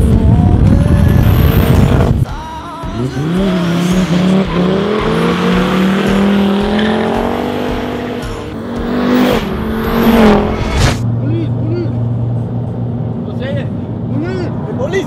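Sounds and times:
diesel engine revving hard: 3.0s - 11.0s.

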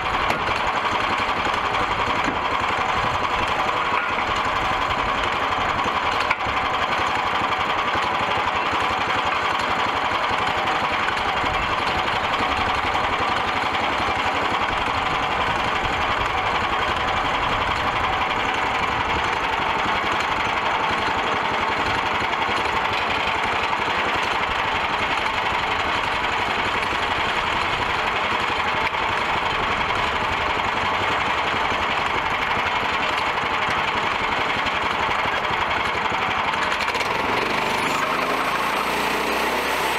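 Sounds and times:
band sawmill cutting log: 0.0s - 39.9s.

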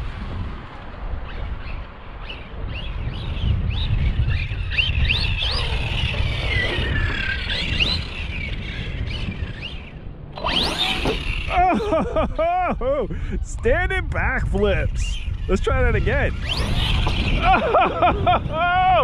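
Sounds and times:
electric motor whining: 3.7s - 11.9s, 14.8s - 18.6s.

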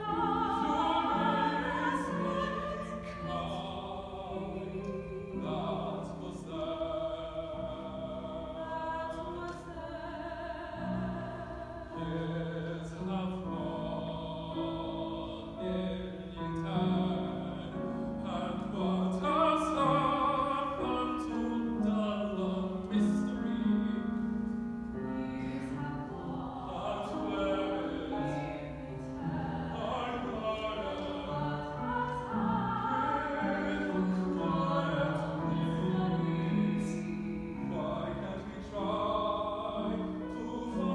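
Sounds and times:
man singing operatically: 12.0s - 24.2s, 26.6s - 28.8s, 29.7s - 32.1s, 33.0s - 40.9s.

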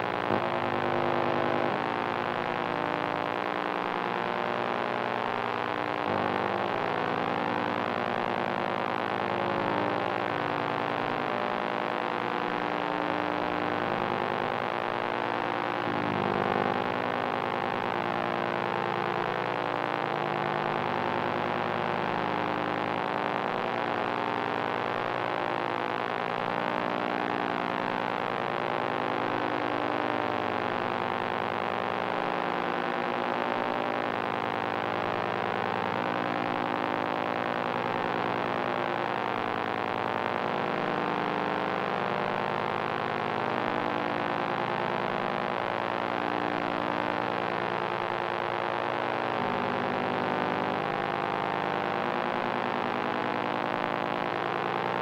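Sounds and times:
electronic humming drone: 0.3s - 1.8s.

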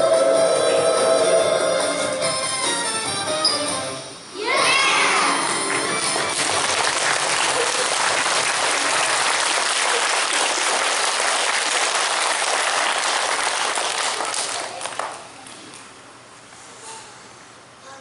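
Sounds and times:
audience applauding: 5.4s - 15.3s.

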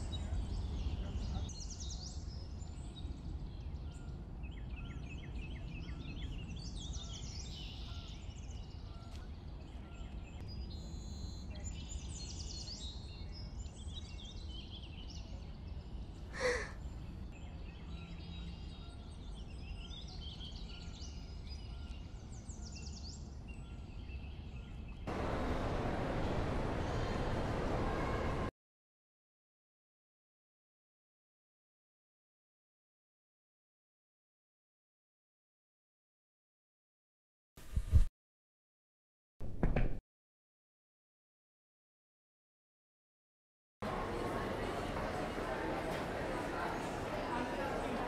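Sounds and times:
small birds chirping: 0.0s - 28.4s.

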